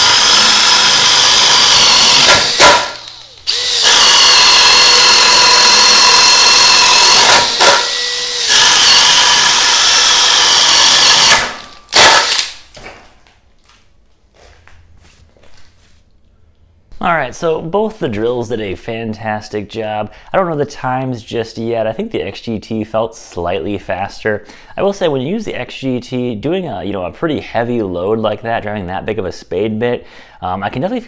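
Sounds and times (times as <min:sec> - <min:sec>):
drill motor whining under load: 0:00.0 - 0:12.5.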